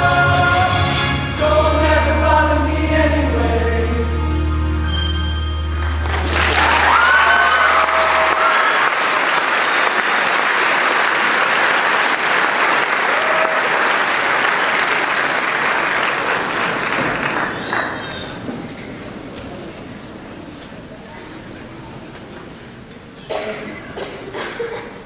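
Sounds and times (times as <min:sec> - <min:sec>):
audience applause: 0:05.8 - 0:18.4
audience shouts: 0:06.4 - 0:09.2, 0:13.0 - 0:13.9.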